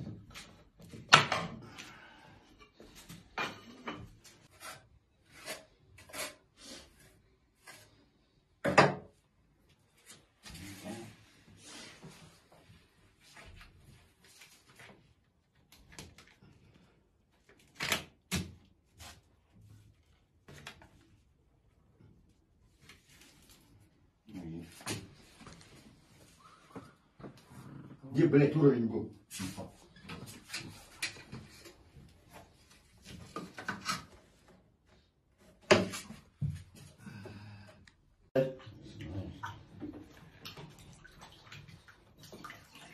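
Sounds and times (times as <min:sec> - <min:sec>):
tools and tiles knocking: 0:00.0 - 0:01.6, 0:08.6 - 0:09.2.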